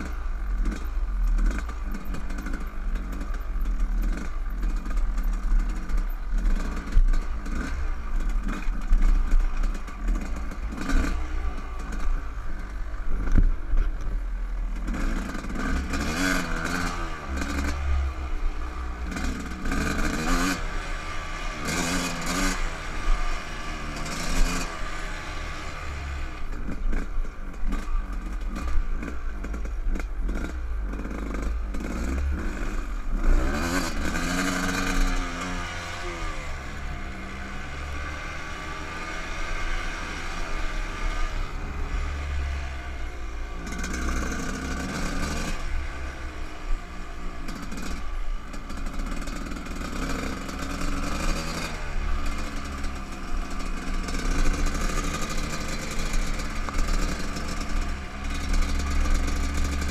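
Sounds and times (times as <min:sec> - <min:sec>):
dirt bike engine revving: 0:00.0 - 0:13.5, 0:14.8 - 0:46.8, 0:47.4 - 0:59.9.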